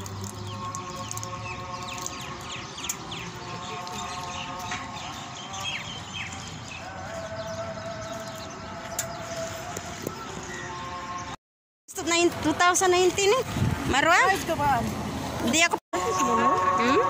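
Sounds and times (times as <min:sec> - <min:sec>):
flock of birds chirping: 0:00.0 - 0:11.4.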